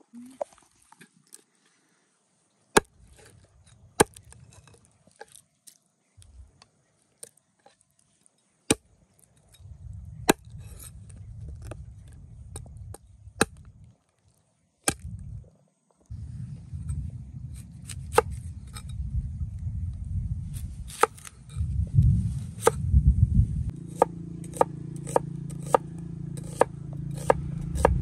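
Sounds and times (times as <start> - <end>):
knife chopping on wooden board: 23.9 - 28.0.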